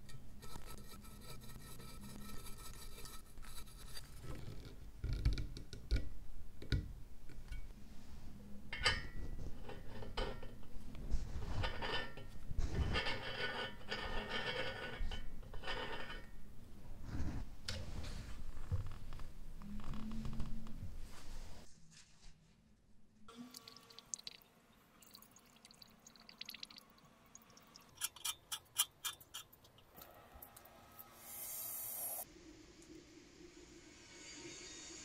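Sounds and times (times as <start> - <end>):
metal scraping and rubbing: 0.0 - 4.6, 8.8 - 16.4, 27.9 - 32.3
screwdriver turning a screw: 28.0 - 29.8.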